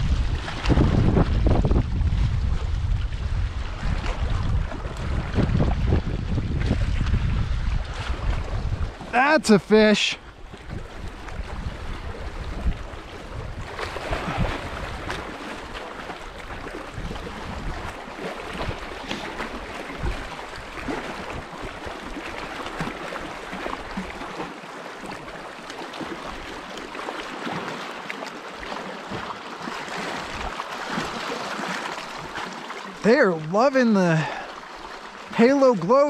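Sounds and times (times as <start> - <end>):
wind buffeting microphone: 0.0 - 9.2, 10.3 - 22.2
waves lapping against rocks: 0.0 - 36.0.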